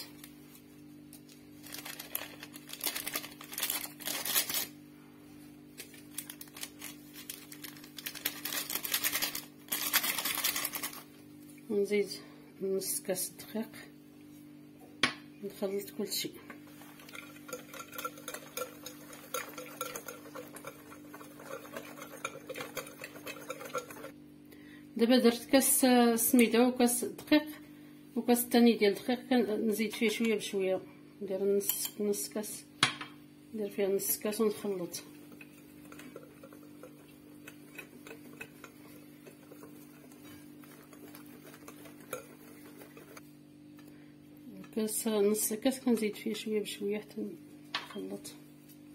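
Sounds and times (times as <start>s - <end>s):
whisk scraping glass bowl: 16.7s - 24.2s, 35.0s - 43.3s
whisk clicking against glass bowl: 17.1s - 24.1s.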